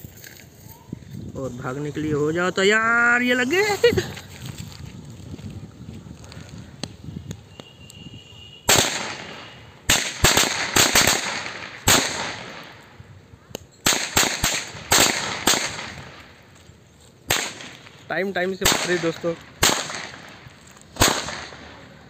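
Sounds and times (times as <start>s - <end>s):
firecrackers banging: 8.7s - 12.9s, 13.8s - 16.6s, 17.2s - 22.0s.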